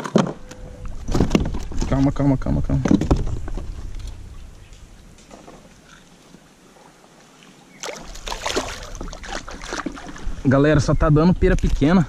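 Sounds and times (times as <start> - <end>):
fish splashing and rattling: 0.3 - 2.2, 7.8 - 10.5
soft water handling noise: 0.3 - 12.0.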